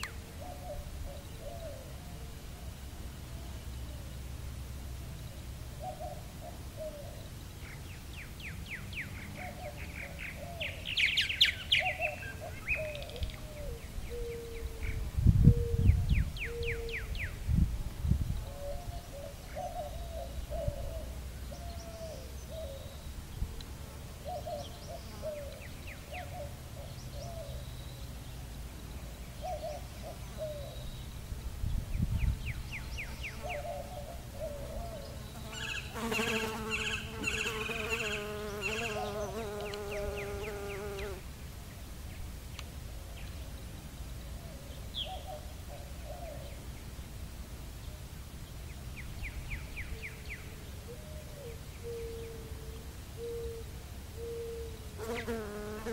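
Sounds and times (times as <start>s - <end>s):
faint bird calls: 9.1s - 17.4s, 49.8s - 55.4s.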